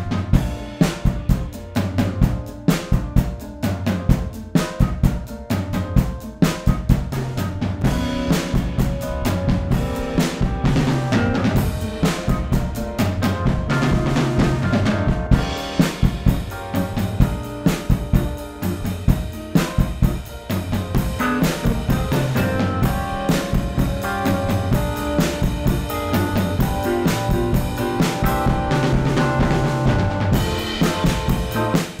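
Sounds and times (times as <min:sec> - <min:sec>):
snare drum: 0:20.9 - 0:32.0.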